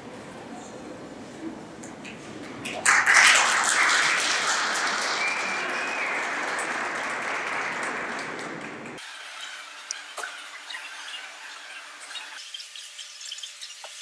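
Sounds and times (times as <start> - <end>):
crowd applauding: 2.4 - 9.0.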